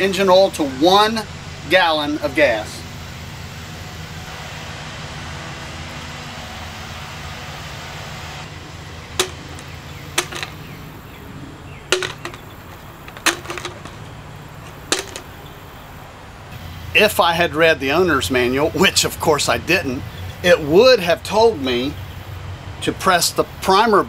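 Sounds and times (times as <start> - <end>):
distant lawn mower drone: 0.0 - 24.0
plastic tubes clicking together: 9.2 - 10.6.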